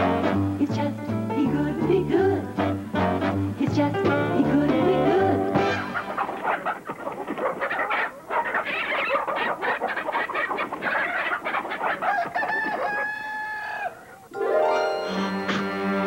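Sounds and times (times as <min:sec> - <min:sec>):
chickens squawking: 0:05.6 - 0:14.4.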